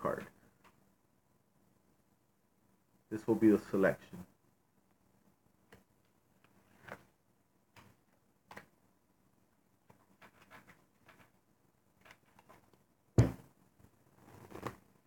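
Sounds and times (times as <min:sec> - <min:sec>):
playing cards flicking and clicking: 0:07.7 - 0:08.8, 0:14.3 - 0:14.8
thump on table: 0:13.2 - 0:13.4.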